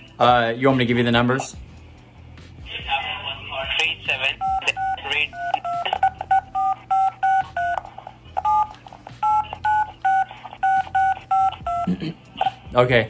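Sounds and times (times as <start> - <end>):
telephone keypad beeps: 4.3 - 7.8, 8.4 - 11.9.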